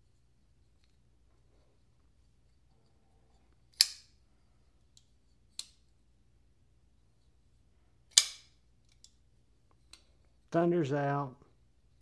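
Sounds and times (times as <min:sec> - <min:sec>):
knife blade snapping open: 0:03.7 - 0:04.1, 0:08.1 - 0:08.5.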